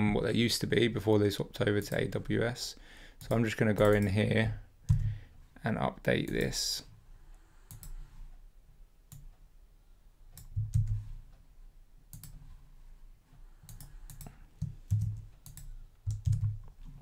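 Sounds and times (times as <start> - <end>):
keyboard keypresses: 10.3 - 11.0, 13.7 - 16.8.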